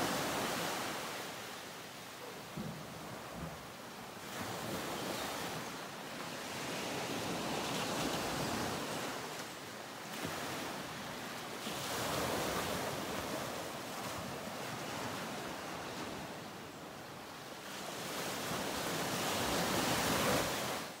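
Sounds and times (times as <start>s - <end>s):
ocean waves washing in: 0.0s - 1.7s.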